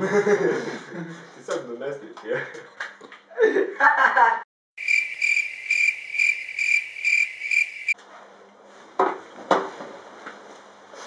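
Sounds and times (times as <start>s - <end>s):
cricket chirping: 4.8s - 8.0s.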